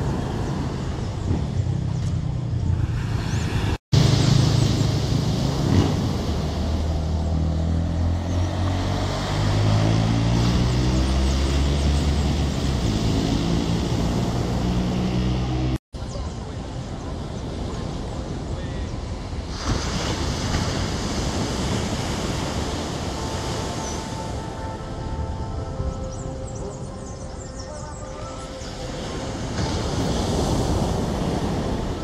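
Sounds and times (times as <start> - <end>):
wind: 0.0 - 32.0
surf hissing: 16.5 - 24.8, 28.1 - 32.0.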